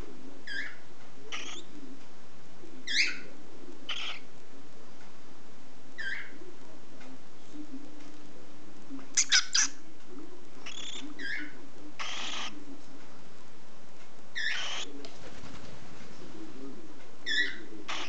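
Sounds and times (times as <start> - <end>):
cockatiel chick chirping: 0.5 - 1.7, 3.9 - 4.3, 9.2 - 9.8, 10.6 - 12.6, 14.4 - 14.9, 17.2 - 18.0.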